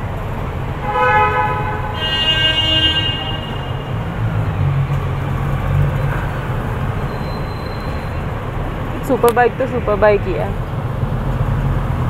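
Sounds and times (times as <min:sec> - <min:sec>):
traffic engine rumble: 0:00.0 - 0:12.0
vehicle horns honking: 0:00.8 - 0:04.2.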